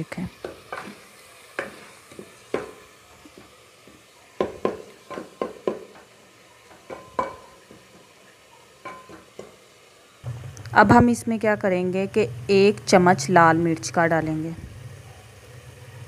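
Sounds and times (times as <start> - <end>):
faint sizzle of frying: 0.0 - 16.0
wooden spoon knocking metal pot: 1.6 - 3.5, 4.4 - 6.1, 6.7 - 8.1, 8.8 - 9.6.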